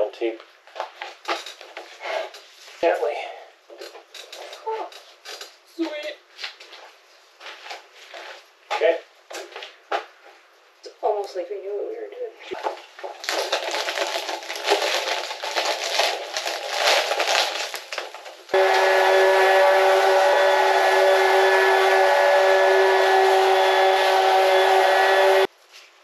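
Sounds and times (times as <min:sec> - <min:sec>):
loud held chord: 0:18.6 - 0:25.5.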